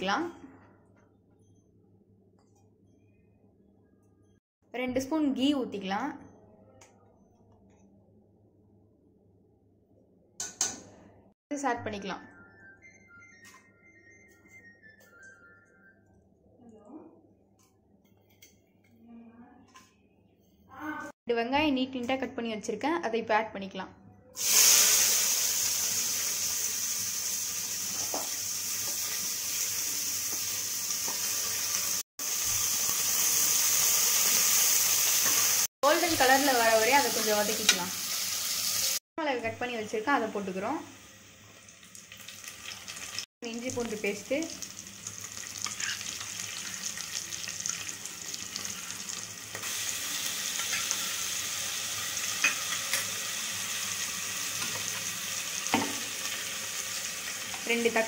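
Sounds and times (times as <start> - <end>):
onions sizzling in oil: 24.4 - 39.0, 40.9 - 58.0.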